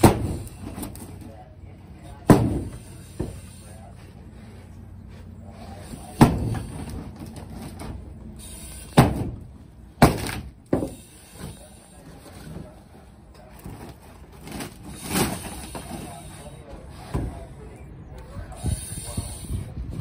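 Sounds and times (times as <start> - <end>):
axe blows on board wall: 9.0 - 9.4
wood splintering: 10.0 - 11.0.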